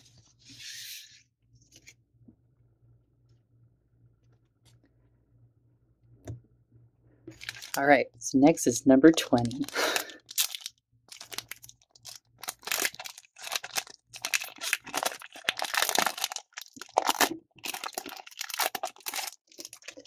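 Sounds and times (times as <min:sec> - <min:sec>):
foil pack tearing and crinkling: 0:07.3 - 0:07.8, 0:09.4 - 0:20.0
wrapper rustling: 0:07.3 - 0:07.8, 0:09.3 - 0:20.0.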